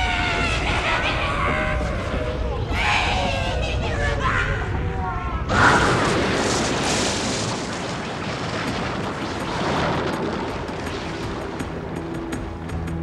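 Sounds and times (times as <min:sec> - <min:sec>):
low rumbling of fire: 0:00.0 - 0:13.0
low ominous music notes: 0:09.4 - 0:13.0.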